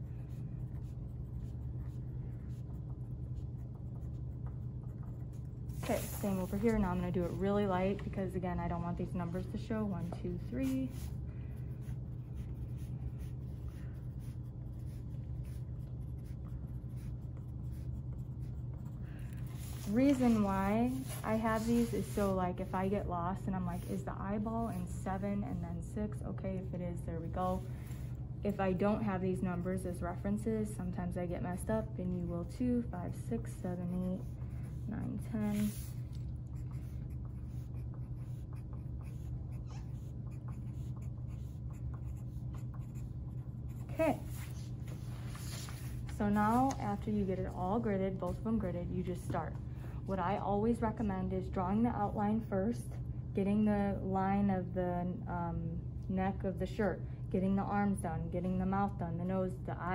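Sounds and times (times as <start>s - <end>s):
steady low hum: 0.0s - 59.9s
pencil writing on paper: 0.2s - 7.4s, 9.8s - 22.3s, 33.7s - 44.4s.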